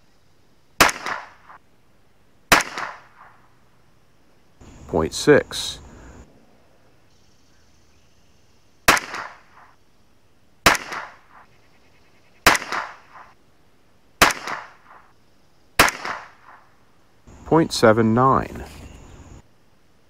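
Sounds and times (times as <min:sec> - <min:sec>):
rifle shots: 0:00.8 - 0:01.6, 0:02.5 - 0:03.4, 0:08.9 - 0:09.8, 0:10.6 - 0:11.5, 0:12.4 - 0:13.4, 0:14.2 - 0:15.1, 0:15.8 - 0:16.7.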